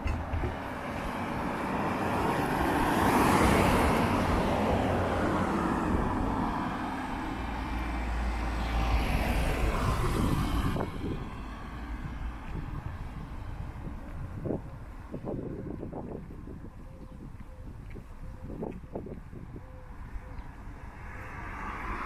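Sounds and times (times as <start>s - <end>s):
cars driving past: 0.0s - 14.6s, 20.0s - 22.0s.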